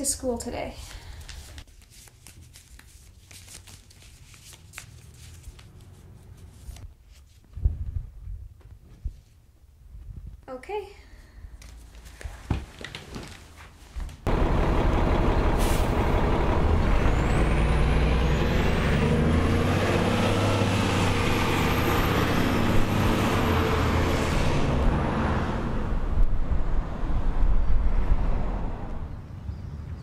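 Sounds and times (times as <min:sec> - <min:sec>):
bus engine running: 0:14.3 - 0:29.1
air brake hiss: 0:15.6 - 0:16.0.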